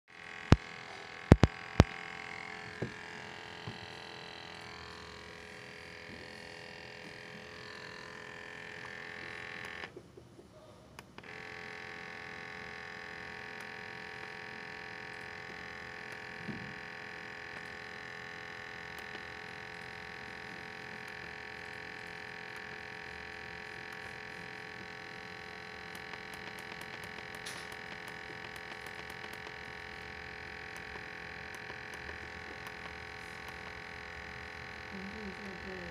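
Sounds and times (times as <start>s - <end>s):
sampling pump humming: 0.1s - 35.9s
sharp clicks: 0.2s - 3.8s, 11.0s - 35.0s
keypad button ticks: 1.3s - 1.9s.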